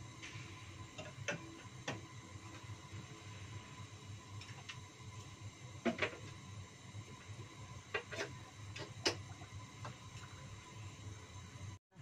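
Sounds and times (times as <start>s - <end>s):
water boiling in wok: 0.0s - 12.0s.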